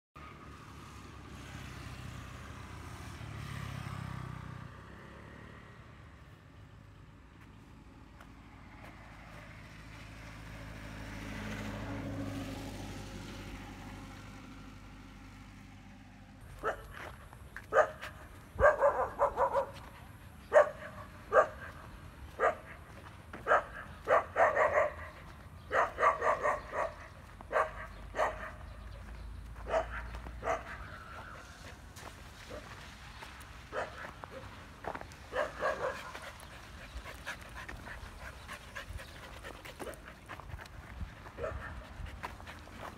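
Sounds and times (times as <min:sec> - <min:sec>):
vehicle engine passing: 0:00.2 - 0:42.9
dog barking and yipping: 0:16.5 - 0:31.8, 0:33.7 - 0:36.8, 0:41.3 - 0:42.0.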